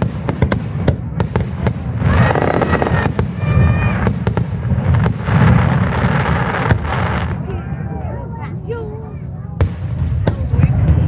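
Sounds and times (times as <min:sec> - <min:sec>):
fireworks bursting in sharp bangs: 0:00.0 - 0:07.5, 0:09.5 - 0:11.0.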